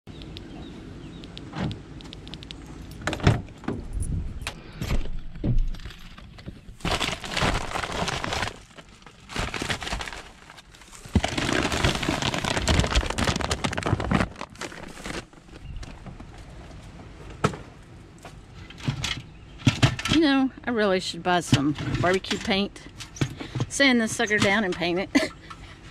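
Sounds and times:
bags rustling and crinkling: 5.8s - 16.5s.

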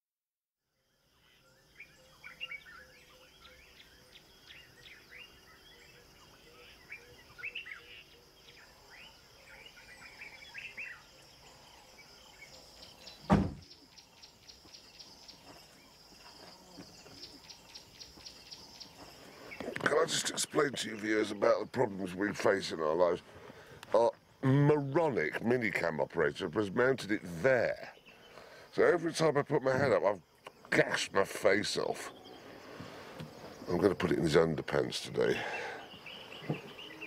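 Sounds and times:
birds chirping and calling: 1.0s - 37.0s
high insect buzz: 10.5s - 19.8s
sharp knock: 13.3s - 13.6s.

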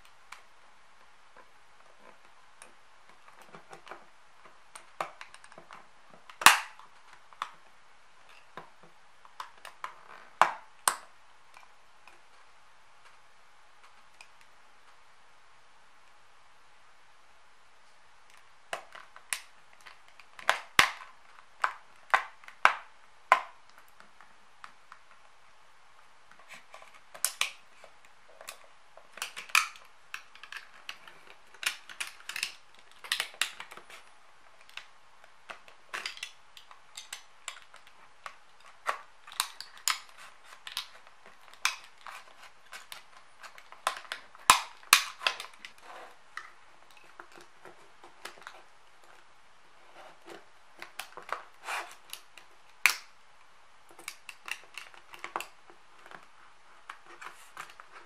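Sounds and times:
plastic case clicking and cracking: 28.4s - 34.0s, 35.5s - 45.8s.

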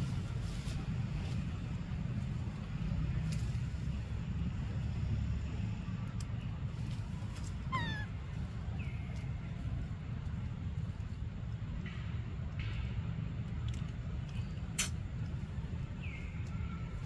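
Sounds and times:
baby monkey crying: 7.7s - 8.1s.

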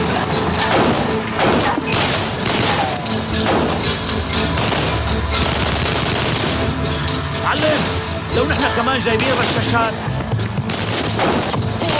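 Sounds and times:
gunshots: 0.0s - 6.8s, 10.6s - 11.9s
dramatic background music: 0.0s - 11.9s.

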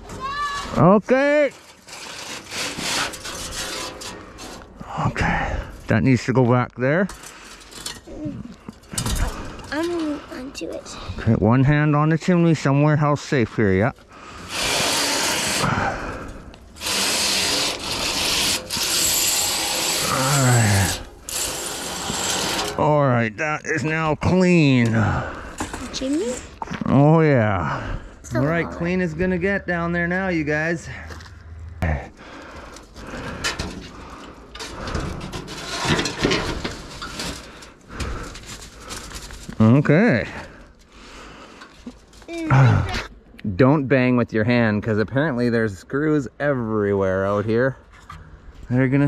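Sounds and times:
brush scraping inside metal flue: 1.3s - 4.8s, 13.6s - 22.8s, 32.4s - 42.1s.

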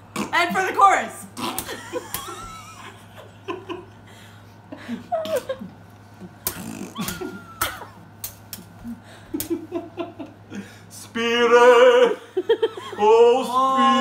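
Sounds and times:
steady low hum: 0.0s - 14.0s
people laughing: 1.6s - 4.0s, 7.0s - 8.0s, 8.8s - 10.6s, 12.2s - 13.3s.

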